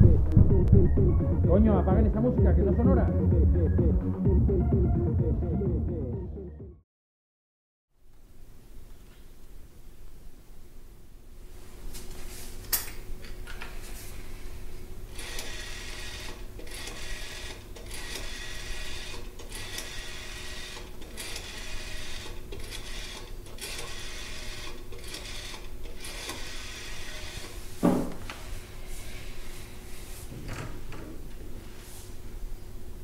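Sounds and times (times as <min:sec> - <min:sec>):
machine rasping strokes: 0:15.1 - 0:27.6.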